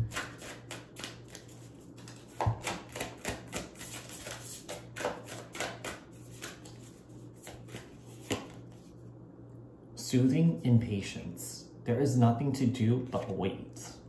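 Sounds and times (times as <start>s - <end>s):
cards being shuffled: 0.0s - 9.0s.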